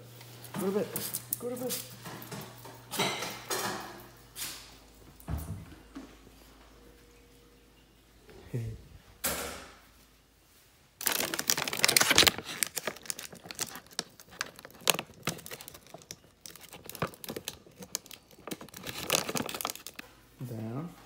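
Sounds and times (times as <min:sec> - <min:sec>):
plastic bag crinkling: 0:11.0 - 0:20.2.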